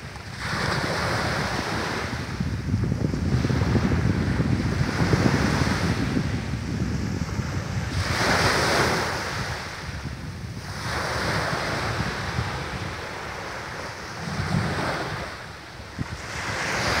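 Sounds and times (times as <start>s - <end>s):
waves washing up beach: 0.0s - 17.0s
wind buffeting microphone: 0.0s - 17.0s.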